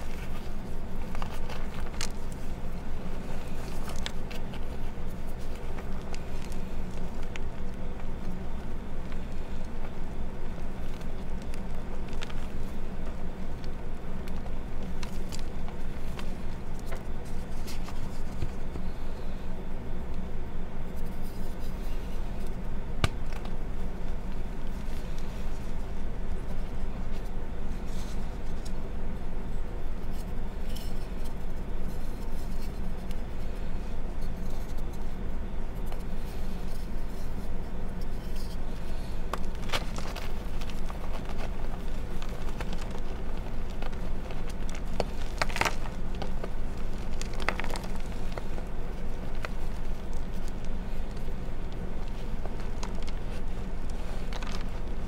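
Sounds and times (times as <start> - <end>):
chalk crunching by hand: 30.0 - 55.0.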